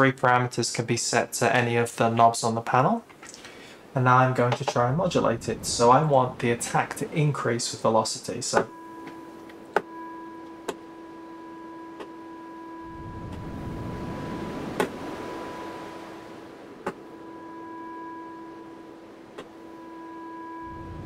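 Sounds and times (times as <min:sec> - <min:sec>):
synthesizer steady note: 0:08.7 - 0:19.1
synthesizer noise wash: 0:12.2 - 0:21.0.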